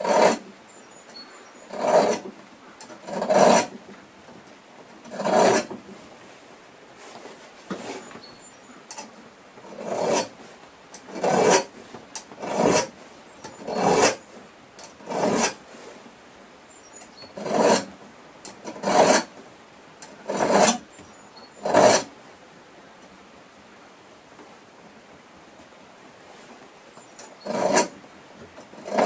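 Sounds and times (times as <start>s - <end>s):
file rasping on saw teeth: 0.0s - 0.4s, 1.7s - 2.2s, 3.0s - 3.7s, 5.1s - 5.7s, 9.7s - 10.3s, 11.1s - 11.7s, 12.4s - 12.9s, 13.5s - 14.2s, 15.0s - 15.6s, 17.4s - 17.9s, 18.7s - 19.3s, 20.2s - 20.8s, 21.6s - 22.1s, 27.4s - 27.9s, 28.8s - 29.0s.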